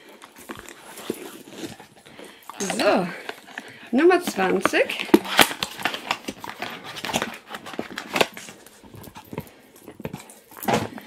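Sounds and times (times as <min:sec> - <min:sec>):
dog chewing rubber toy: 0:00.0 - 0:11.0
cardboard box clicks and rustling: 0:04.9 - 0:11.0.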